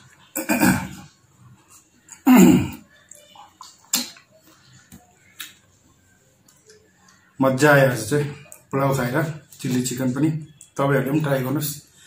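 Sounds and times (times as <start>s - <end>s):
lip smacks: 3.1s - 5.6s.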